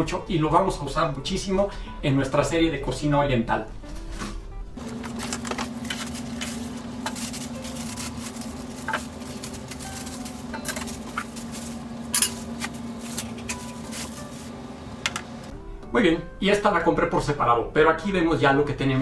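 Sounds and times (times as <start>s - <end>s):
plastic wrap crinkling: 4.8s - 14.6s.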